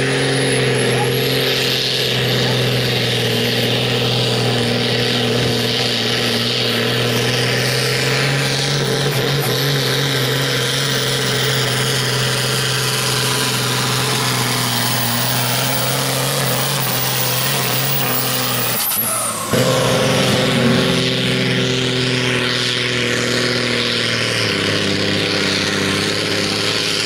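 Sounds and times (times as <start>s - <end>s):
tractor diesel engine droning: 0.0s - 27.0s.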